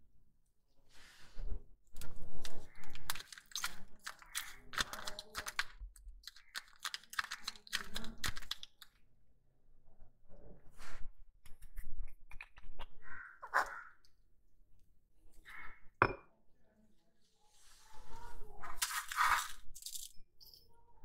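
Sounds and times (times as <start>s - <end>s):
plastic sachet crinkling: 2.0s - 9.0s.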